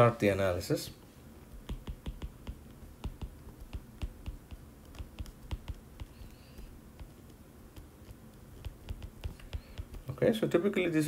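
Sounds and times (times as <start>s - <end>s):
stylus tapping on glass screen: 1.5s - 10.2s.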